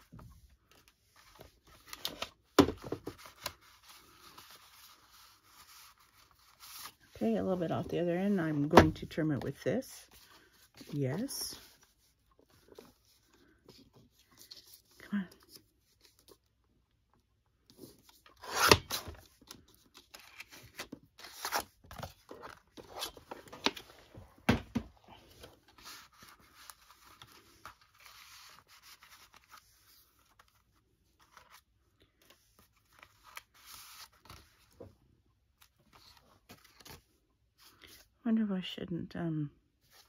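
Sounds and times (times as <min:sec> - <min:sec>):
paper rustling and scraping: 0:00.0 - 0:16.4, 0:25.2 - 0:34.8.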